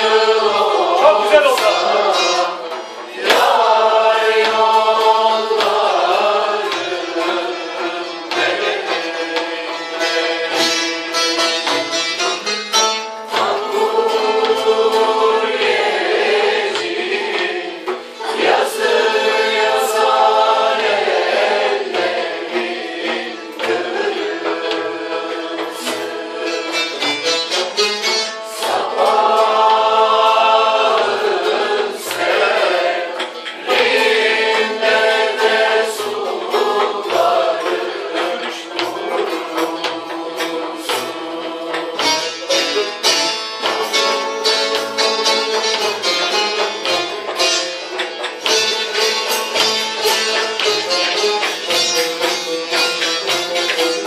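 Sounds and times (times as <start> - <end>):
choir singing: 0.0 - 11.9, 13.0 - 54.0
hand drum beat: 0.0 - 54.0
long-necked lute: 0.0 - 54.0.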